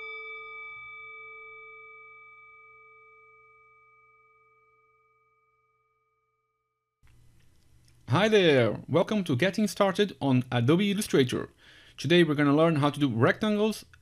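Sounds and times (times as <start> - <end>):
bell-like chime: 0.0 - 5.7.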